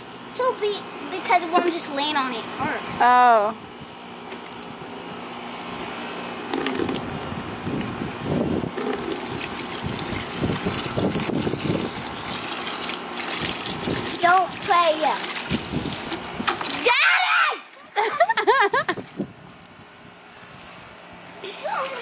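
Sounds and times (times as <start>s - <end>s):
water gushing from garden hose: 5.4s - 17.0s, 19.9s - 22.0s.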